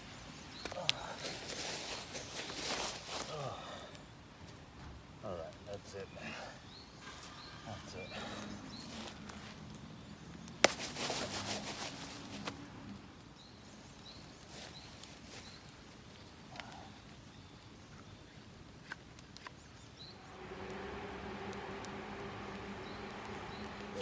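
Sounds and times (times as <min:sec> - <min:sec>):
rustling and scraping in dry leaves: 0:00.8 - 0:03.6, 0:10.6 - 0:13.0, 0:14.4 - 0:15.8.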